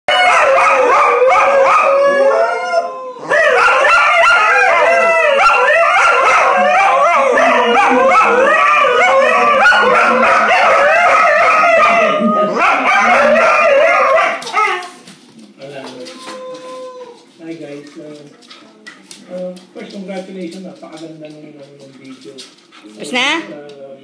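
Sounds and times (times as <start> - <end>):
dogs howling together: 0.1 - 15.0, 16.0 - 17.3.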